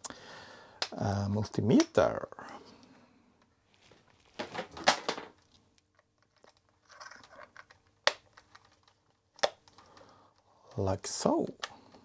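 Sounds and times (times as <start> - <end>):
plastic crackling and clicks: 4.9 - 10.1.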